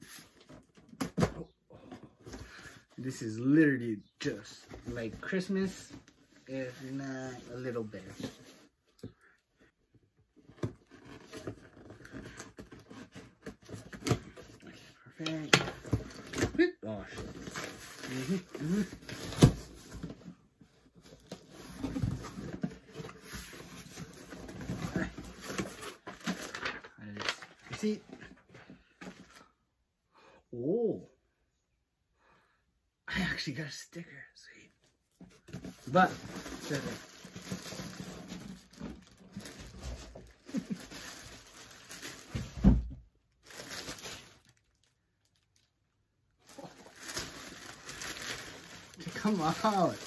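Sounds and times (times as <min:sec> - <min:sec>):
cardboard box rustling and crinkling: 0:10.4 - 0:14.6, 0:15.3 - 0:29.4, 0:35.3 - 0:45.4, 0:46.4 - 0:50.0
plastic bag crinkling: 0:35.9 - 0:42.4, 0:43.4 - 0:45.7, 0:46.4 - 0:50.0.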